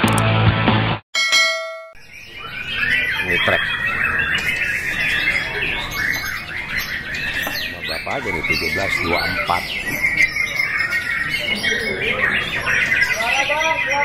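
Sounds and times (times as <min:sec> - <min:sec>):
short ringing chime: 0:01.2 - 0:02.0
chorus of songbirds: 0:02.0 - 0:14.0.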